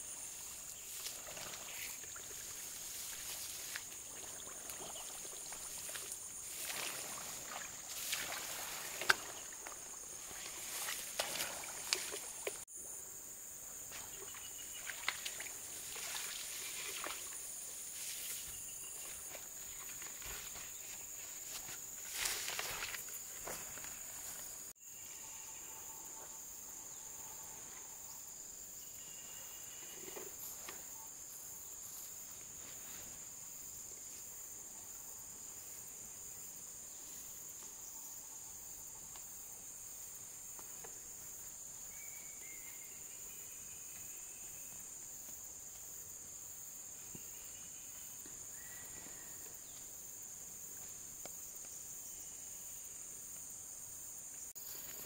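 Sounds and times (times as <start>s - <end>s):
insects droning: 0.0s - 55.0s
short insect chirps: 13.8s - 32.4s, 41.8s - 45.6s.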